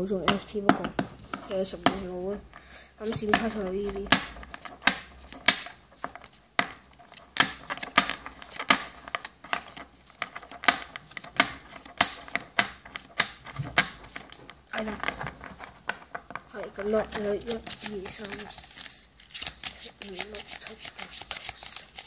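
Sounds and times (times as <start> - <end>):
trading cards snapping: 6.6 - 15.2, 16.8 - 22.0.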